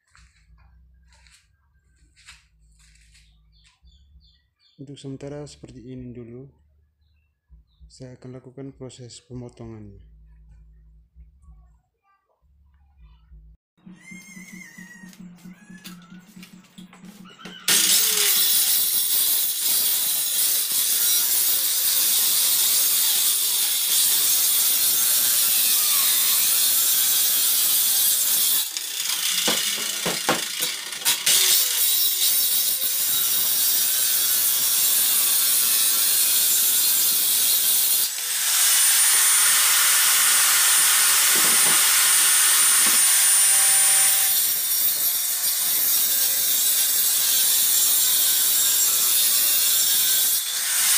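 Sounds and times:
circular saw cutting wood: 13.8 - 50.9.

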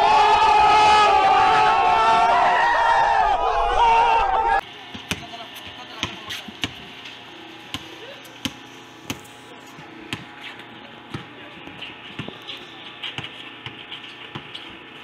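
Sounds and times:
basketball bouncing on court: 4.9 - 6.9, 7.7 - 9.2, 10.1 - 10.3, 11.0 - 15.0.

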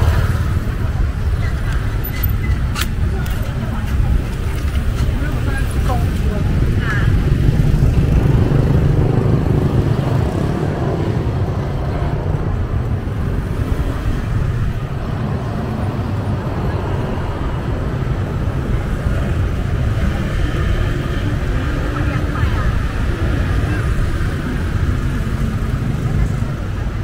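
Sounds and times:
road traffic rumble: 0.0 - 27.0.

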